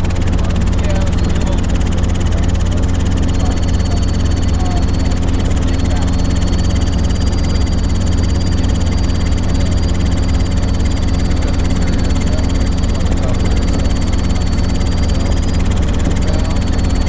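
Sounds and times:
helicopter engine and rotor drone: 0.0 - 17.0.

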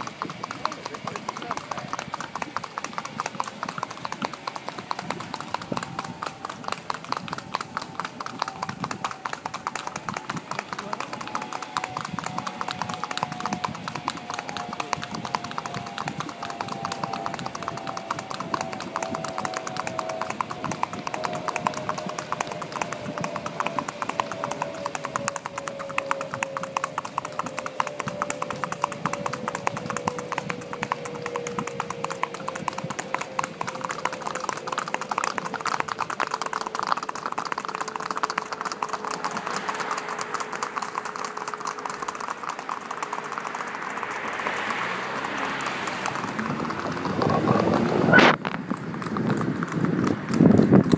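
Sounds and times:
hoofbeats on pavement: 0.0 - 50.9
steady falling tone: 35.9 - 48.4
car tyres hissing: 37.9 - 48.6.

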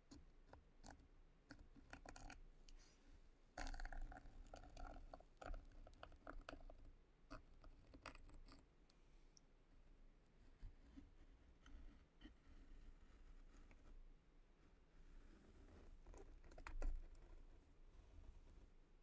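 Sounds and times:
needle tool scratching clay: 3.6 - 8.7, 10.4 - 14.0, 14.6 - 18.6.

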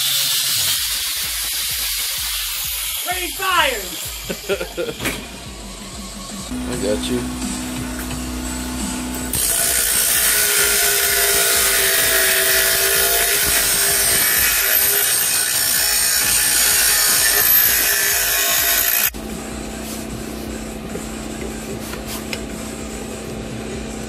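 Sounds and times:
bench grinder grinding steel: 0.0 - 5.0, 6.5 - 19.2.

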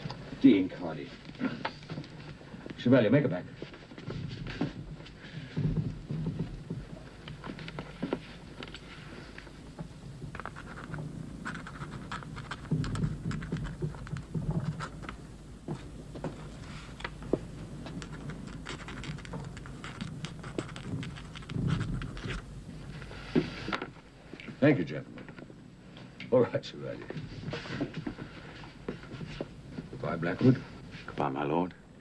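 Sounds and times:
faint low rumble: 0.0 - 32.0
quill pen scratching on paper: 10.3 - 15.2, 17.8 - 23.7.

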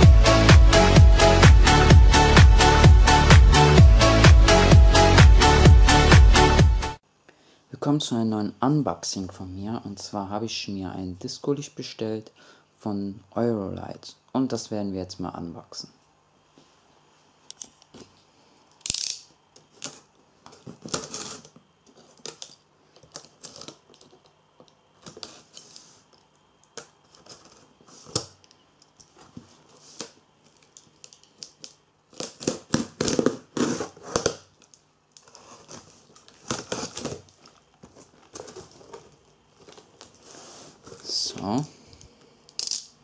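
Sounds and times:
cardboard flaps rustling: 35.3 - 41.5.

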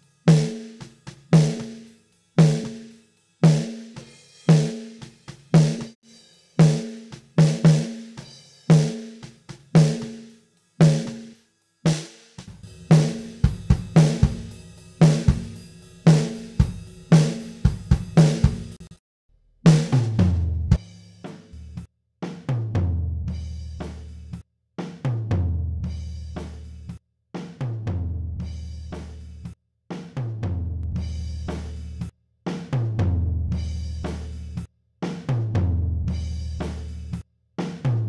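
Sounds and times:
ringing snare drum hits: 0.3 - 6.0, 6.6 - 11.3, 11.9 - 18.9.

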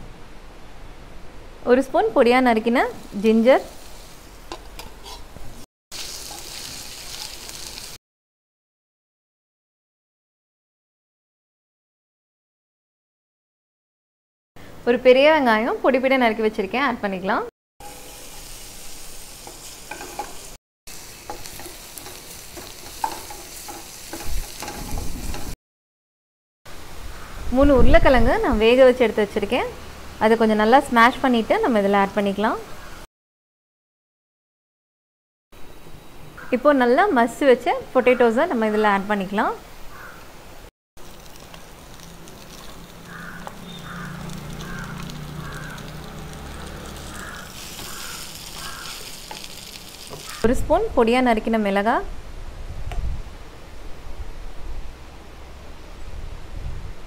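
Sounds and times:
vegetables sizzling in hot oil: 2.6 - 8.0, 17.8 - 25.6, 41.0 - 50.5
wooden spatula scraping pan: 4.5 - 5.6, 19.4 - 20.6, 21.2 - 25.6
crow cawing: 39.9 - 40.2, 43.0 - 49.1, 50.2 - 50.4.

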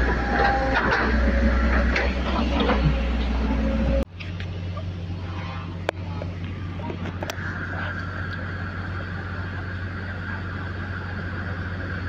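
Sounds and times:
excavator diesel engine rumbling: 0.0 - 12.0
steady low hum: 0.0 - 12.0.

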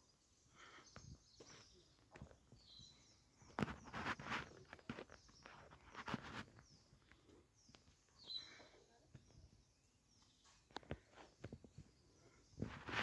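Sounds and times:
faint footsteps: 1.0 - 8.4.

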